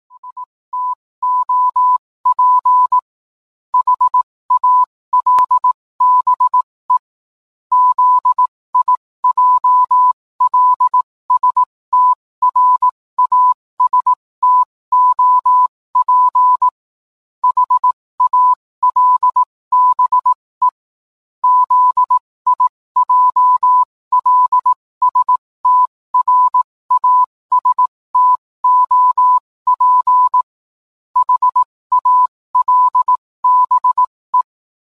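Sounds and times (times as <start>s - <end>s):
morse code beeps: 0.1s - 3.0s, 3.8s - 7.0s, 7.7s - 16.8s, 17.4s - 20.8s, 21.4s - 30.5s, 31.2s - 34.5s.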